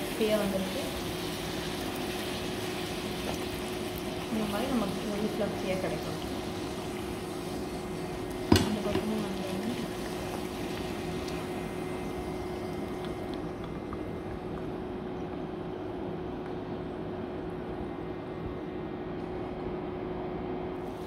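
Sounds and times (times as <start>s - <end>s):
food sizzling in hot oil: 0.0s - 13.2s.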